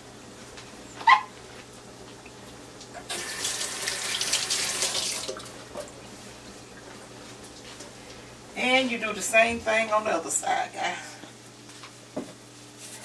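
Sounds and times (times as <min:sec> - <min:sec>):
kitchen tap running: 0:02.9 - 0:05.6.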